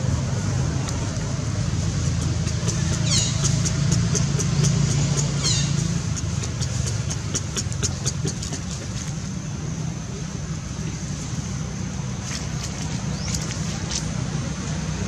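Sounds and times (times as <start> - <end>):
macaque squeaks: 2.8 - 8.7.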